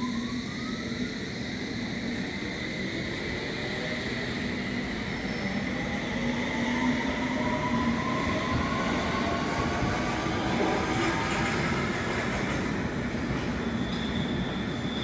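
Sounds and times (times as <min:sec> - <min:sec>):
train wheels on rails: 0:07.1 - 0:15.0.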